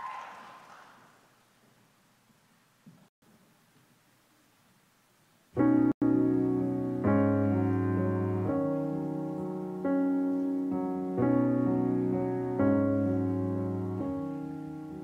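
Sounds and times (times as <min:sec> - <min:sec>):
slow solo piano chords: 0:05.6 - 0:15.0.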